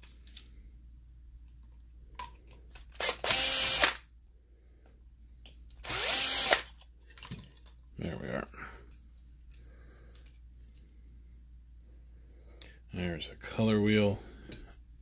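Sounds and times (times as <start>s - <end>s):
cordless drill spinning: 2.9s - 4.0s, 5.8s - 6.8s.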